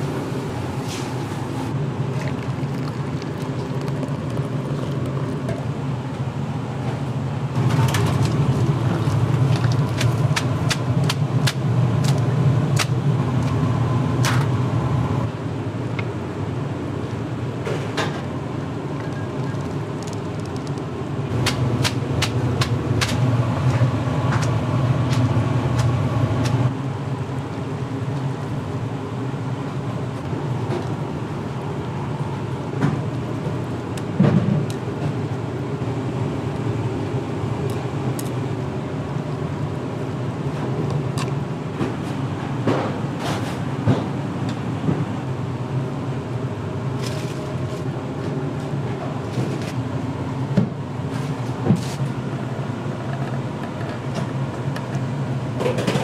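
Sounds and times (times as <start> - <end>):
kitchen equipment rumble: 1.9 - 12.4.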